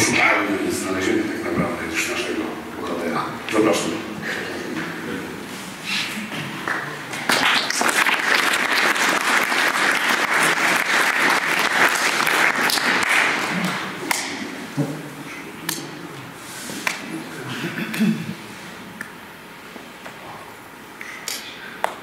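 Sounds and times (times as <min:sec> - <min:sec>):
audience applauding: 0:06.6 - 0:14.2.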